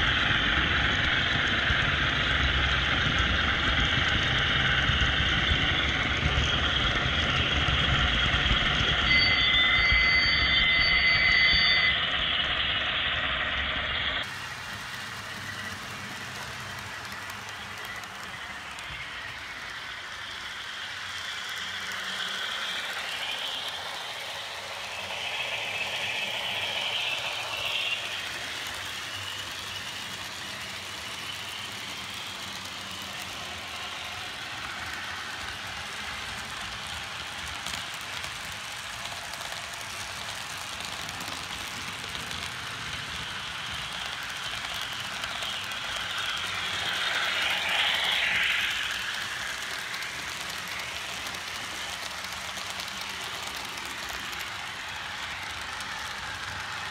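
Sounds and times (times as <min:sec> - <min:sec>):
model train wheels rattling on track: 0:14.2 - 0:56.9.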